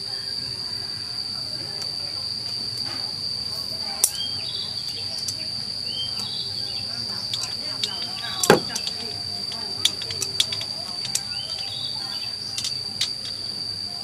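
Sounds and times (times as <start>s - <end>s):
insects droning: 0.0s - 14.0s.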